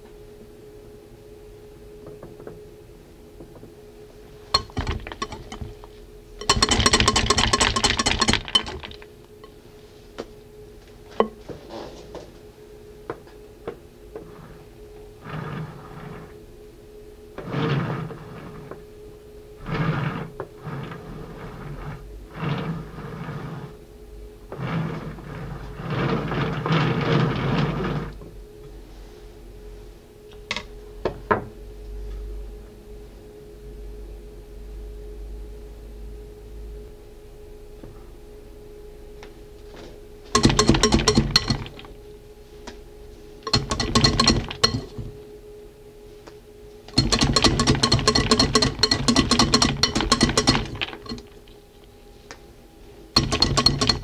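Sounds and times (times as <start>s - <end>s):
steady low hum: 0.0s - 54.0s
metal scraping in bowl: 4.5s - 9.6s, 15.2s - 16.4s, 17.4s - 18.7s, 19.6s - 23.8s, 24.6s - 28.2s, 40.3s - 42.0s, 43.4s - 45.2s, 46.9s - 51.7s, 53.1s - 54.0s
spatula scraping cream: 47.0s - 51.5s.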